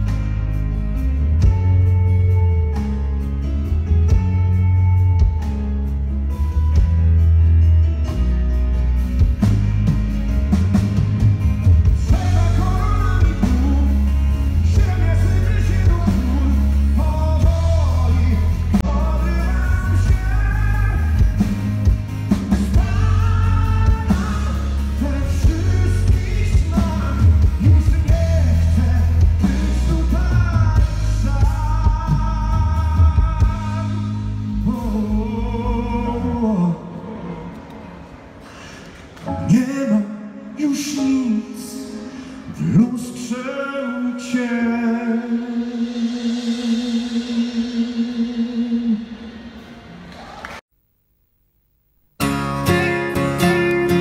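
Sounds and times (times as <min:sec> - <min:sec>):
rock band playing: 0:00.0 - 0:36.2, 0:52.2 - 0:54.0
man singing: 0:11.9 - 0:21.7, 0:22.5 - 0:38.1, 0:39.3 - 0:49.4.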